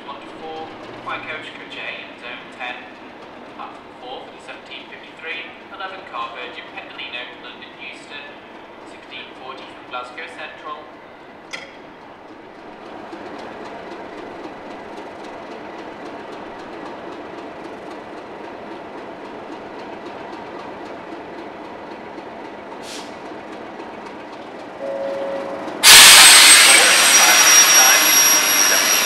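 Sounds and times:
diesel locomotive engine running: 0.0 - 29.0
short hiss: 22.8 - 23.2.

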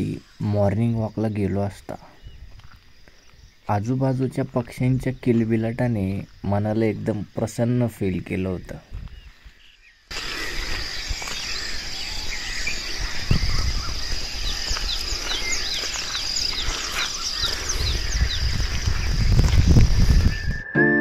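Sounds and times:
birds chirping: 0.0 - 21.0
high-pitched drone: 20.0 - 21.0.

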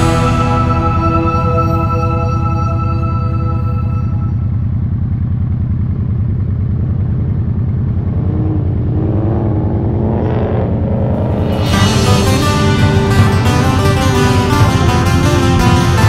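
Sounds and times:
music: 0.0 - 4.7, 11.2 - 16.0
motorcycle engine rumbling: 0.0 - 16.0.

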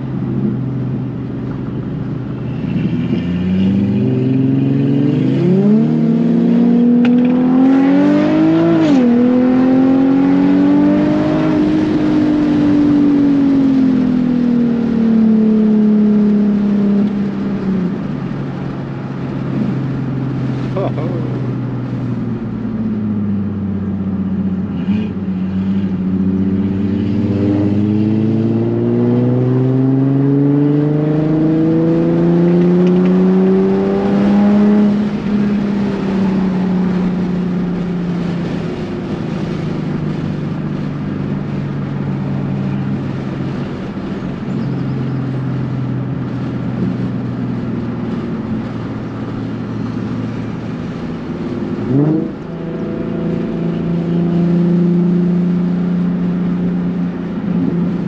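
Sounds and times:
sports car engine accelerating: 0.0 - 58.0.

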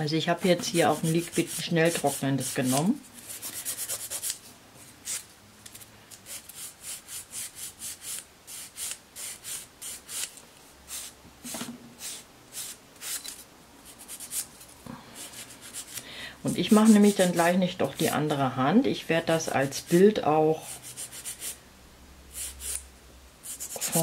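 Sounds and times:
nail file rasping: 0.9 - 4.4, 6.2 - 10.3.

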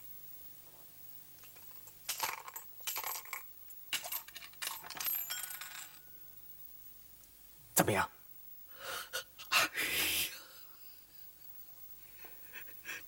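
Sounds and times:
coins clattering on hard surface: 1.4 - 6.2.

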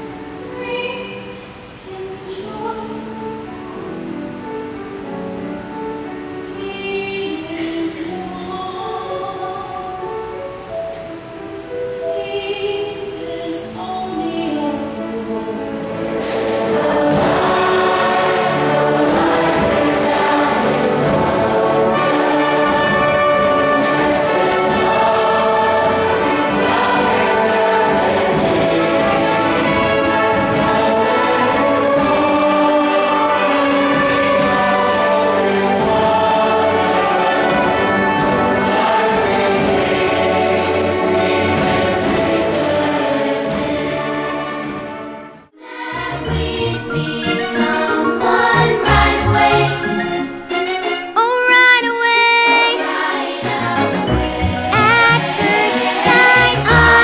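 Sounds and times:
massed choir singing: 12.9 - 50.5, 51.4 - 57.0
instrumental accompaniment: 44.4 - 57.0.

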